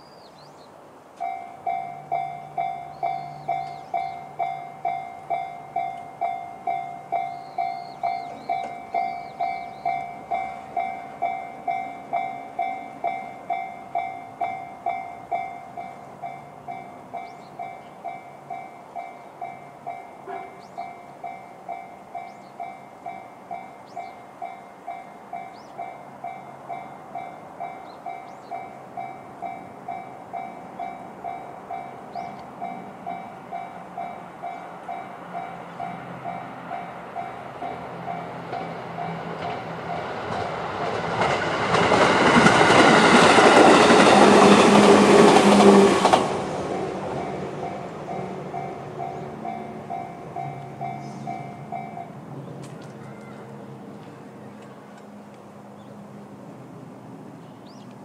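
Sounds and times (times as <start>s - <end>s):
level crossing alarm dinging: 1.2s - 26.1s.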